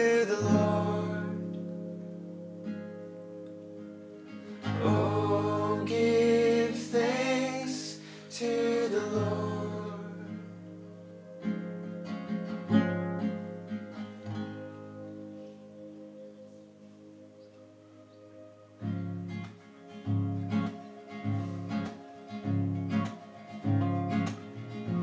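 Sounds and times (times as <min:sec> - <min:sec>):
person singing: 0:00.0 - 0:01.8, 0:04.5 - 0:11.0
strummed acoustic guitar: 0:00.0 - 0:15.0, 0:18.8 - 0:25.0.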